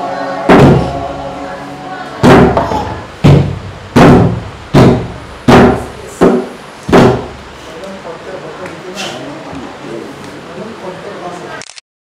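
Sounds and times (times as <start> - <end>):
barrel drum beating: 0.4 - 1.2, 2.2 - 7.6.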